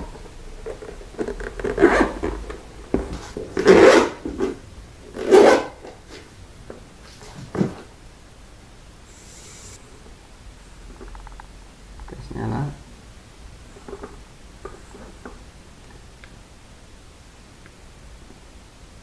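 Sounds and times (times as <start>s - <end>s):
handling rustling and knocking: 0.0s - 4.6s
case zipper: 1.2s - 2.4s, 3.6s - 4.2s, 5.2s - 5.8s.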